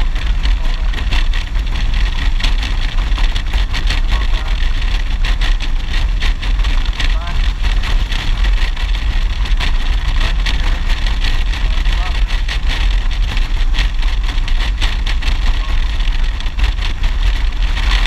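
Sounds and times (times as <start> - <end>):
motorcycle engine running: 0.0 - 18.0
wind buffeting microphone: 0.0 - 18.0.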